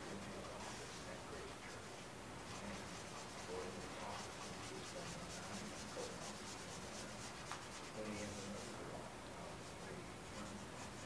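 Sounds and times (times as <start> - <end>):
pencil scratching on paper: 2.4 - 8.8, 9.5 - 11.0.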